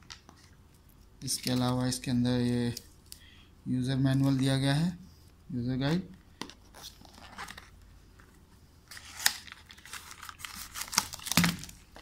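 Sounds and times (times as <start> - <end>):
cardboard and plastic packaging rustling: 6.4 - 12.0.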